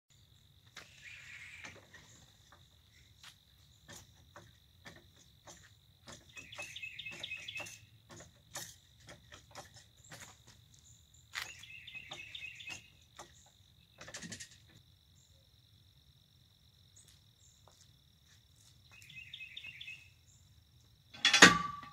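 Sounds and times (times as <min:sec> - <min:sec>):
floor jack clicks and knocks: 0:03.8 - 0:10.6.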